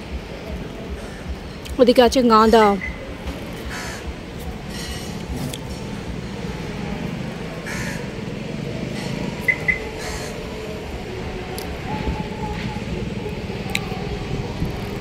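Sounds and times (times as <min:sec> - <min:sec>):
highway traffic rumble: 0:00.0 - 0:15.0
crows cawing: 0:01.0 - 0:01.3, 0:03.6 - 0:04.1, 0:07.6 - 0:08.2, 0:08.9 - 0:10.5.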